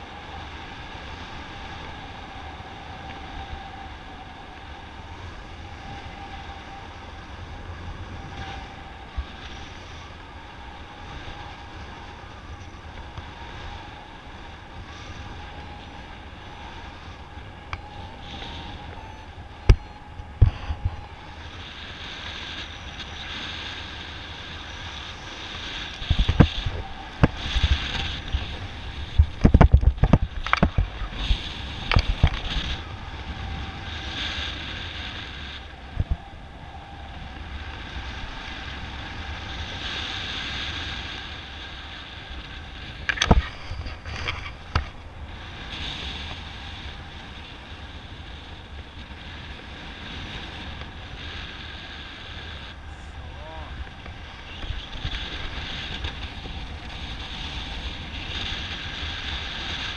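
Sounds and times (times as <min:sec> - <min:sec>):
wind gusts buffeting microphone: 0:00.0 - 0:59.9
wind rushing over microphone: 0:00.0 - 0:59.9
faint whistle: 0:17.8 - 0:20.1.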